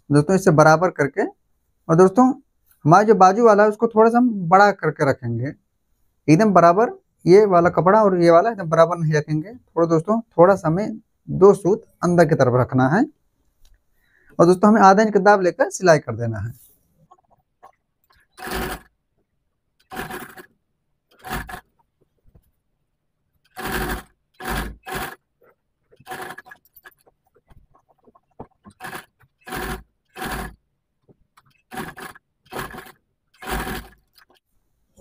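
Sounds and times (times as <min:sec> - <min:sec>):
sewing machine stitching: 0:18.0 - 0:19.0, 0:19.8 - 0:21.8, 0:23.3 - 0:30.6, 0:31.3 - 0:34.4.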